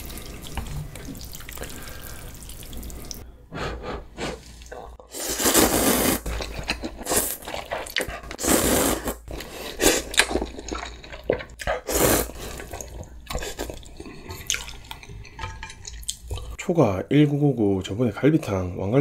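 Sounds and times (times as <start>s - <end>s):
wet noodle slurps: 4.2s - 11.0s.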